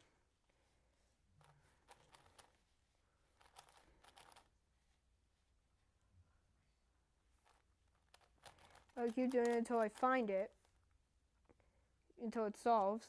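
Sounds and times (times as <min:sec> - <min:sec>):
plastic puzzle cube clicking and rattling: 0:01.4 - 0:02.6, 0:03.4 - 0:04.5, 0:07.4 - 0:10.6.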